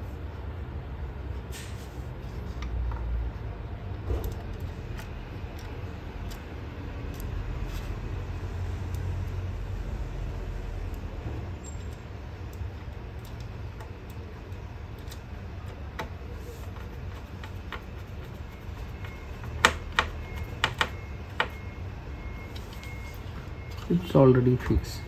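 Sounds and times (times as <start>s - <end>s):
screwdriver ticks and scrapes: 4.2s - 8.0s.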